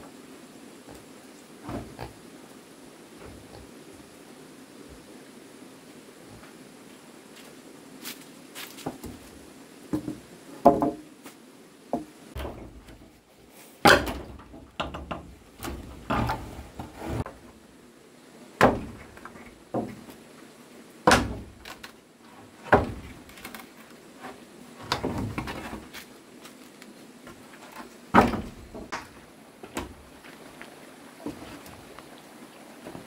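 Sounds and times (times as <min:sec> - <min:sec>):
wooden knocks and thuds: 0:01.6 - 0:02.1, 0:09.9 - 0:11.0, 0:11.9 - 0:13.2, 0:13.8 - 0:17.4, 0:18.6 - 0:20.1, 0:21.1 - 0:21.8, 0:22.6 - 0:23.5, 0:24.8 - 0:25.9, 0:28.1 - 0:30.0
scraping of timber: 0:13.8 - 0:17.4, 0:21.1 - 0:26.1.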